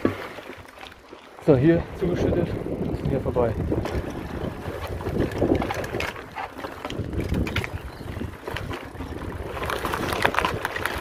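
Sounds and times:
wind buffeting microphone: 0:01.4 - 0:11.0
bike rattling over bumps: 0:03.5 - 0:11.0
bike tyre rolling on dirt: 0:06.9 - 0:11.0.

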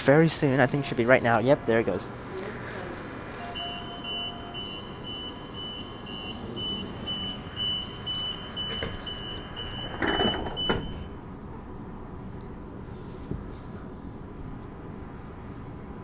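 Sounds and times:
high warning beeps: 0:03.4 - 0:11.2
train doors sliding closed: 0:06.3 - 0:11.2.

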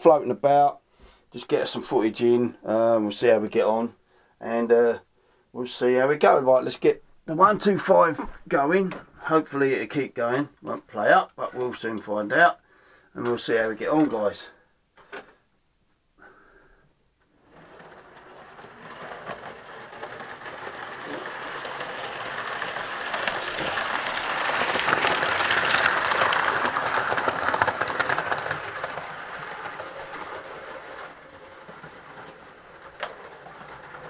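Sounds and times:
model train running on track: 0:17.5 - 0:34.0.

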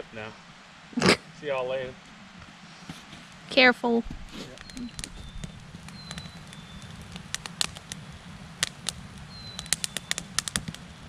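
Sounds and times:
fire crackling: 0:00.0 - 0:11.0
sharp pops: 0:04.1 - 0:08.0, 0:08.6 - 0:10.9.

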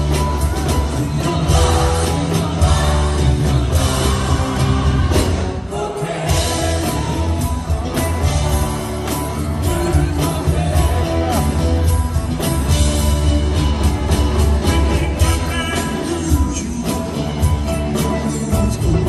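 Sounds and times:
drum kit with cymbal hits: 0:00.0 - 0:19.0
heavy bass: 0:00.0 - 0:19.0.

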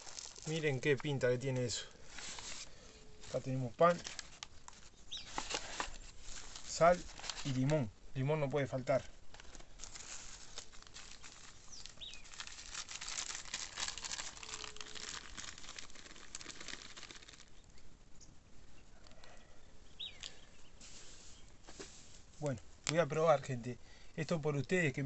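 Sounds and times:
plastic and paper crinkling: 0:00.0 - 0:07.9, 0:08.8 - 0:17.8.

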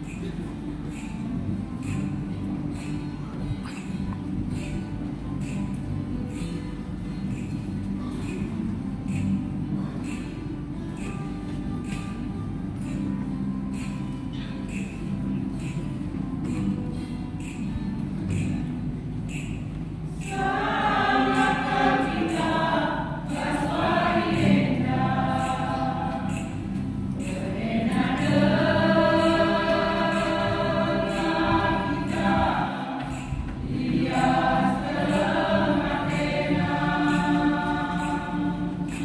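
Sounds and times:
choir singing a hymn: 0:20.2 - 0:39.0.

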